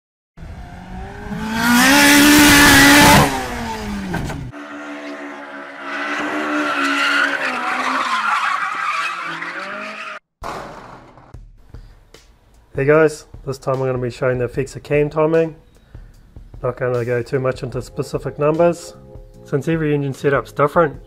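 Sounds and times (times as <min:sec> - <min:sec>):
engine running at steady revs: 0:00.4 - 0:04.8
car engine revving hard: 0:00.4 - 0:08.2
tyres squealing: 0:05.3 - 0:10.2.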